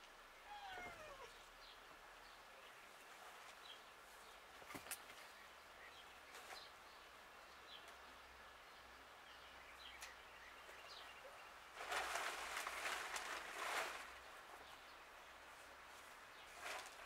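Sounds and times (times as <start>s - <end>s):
faint bird chirps: 0.3s - 3.1s
rustling noise: 10.6s - 17.0s.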